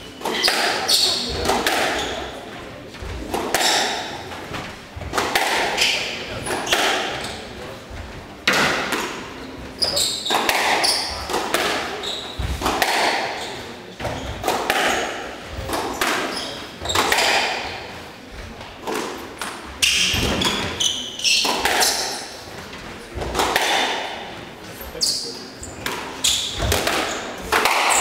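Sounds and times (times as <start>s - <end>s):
shoes squeaking on wooden floor: 0.0s - 23.6s, 24.2s - 28.0s
racket striking ball: 0.2s - 2.2s, 3.2s - 4.3s, 5.1s - 7.4s, 8.4s - 9.3s, 10.1s - 13.4s, 14.0s - 17.8s, 18.7s - 22.3s, 23.2s - 24.3s, 25.8s - 28.0s.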